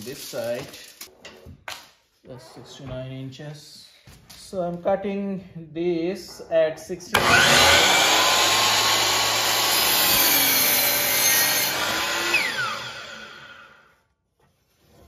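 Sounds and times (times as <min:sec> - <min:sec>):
miter saw cutting wood: 0:07.1 - 0:13.9
saw blade winding down whine: 0:07.2 - 0:13.9.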